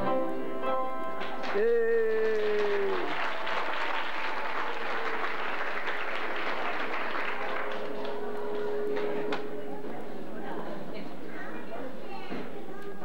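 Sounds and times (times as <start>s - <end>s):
audience applause: 1.2s - 9.4s.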